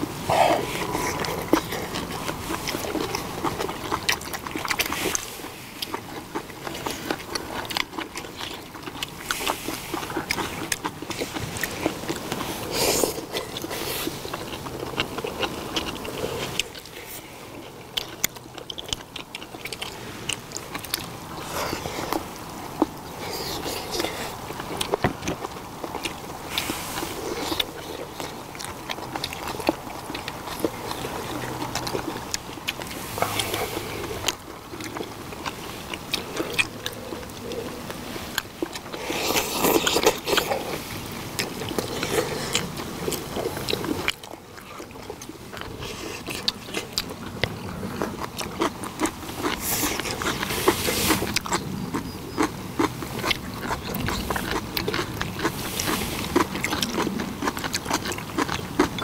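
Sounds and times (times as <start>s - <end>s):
people chewing and eating: 0.0s - 59.0s.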